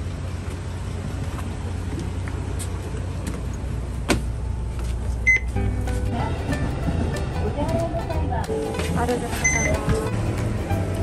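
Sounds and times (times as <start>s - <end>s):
bus engine idling: 0.0s - 11.0s
short electronic beep: 9.4s - 9.8s.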